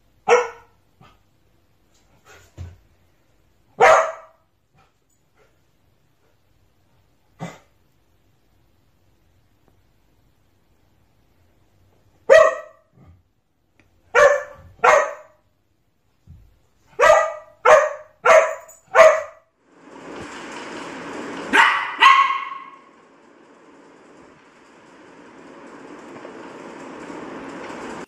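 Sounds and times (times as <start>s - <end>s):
dog barking: 0.2s - 1.2s, 3.8s - 4.4s, 12.3s - 12.9s, 14.1s - 15.4s, 16.9s - 19.5s, 21.5s - 22.9s
steady rushing noise: 19.6s - 28.0s.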